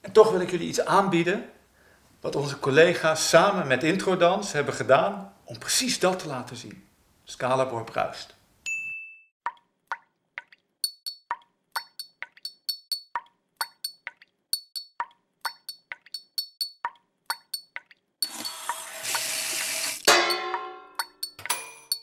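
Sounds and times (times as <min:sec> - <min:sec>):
sharp clinks: 0:10.8 - 0:18.6, 0:20.1 - 0:22.0.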